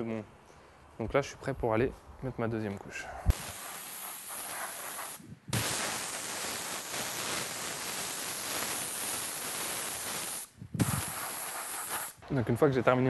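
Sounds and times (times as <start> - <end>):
paint spray gun hissing: 3.3 - 12.2.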